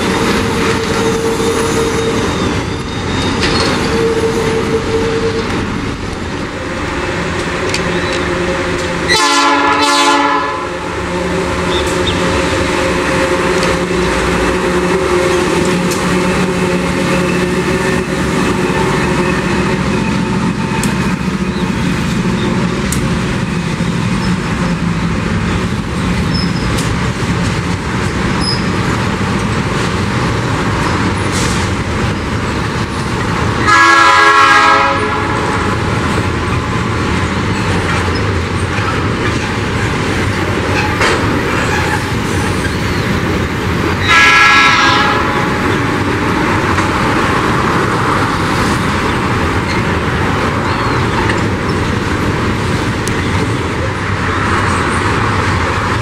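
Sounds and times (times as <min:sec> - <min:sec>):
freight train rumbling past: 0:00.0 - 0:56.0
train horn blasts: 0:03.8 - 0:05.6, 0:06.6 - 0:20.3, 0:33.6 - 0:35.8, 0:44.0 - 0:45.7.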